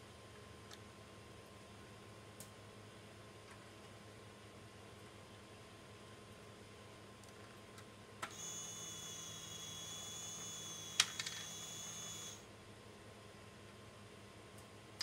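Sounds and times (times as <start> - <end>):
small electric motor whining: 8.3 - 12.4.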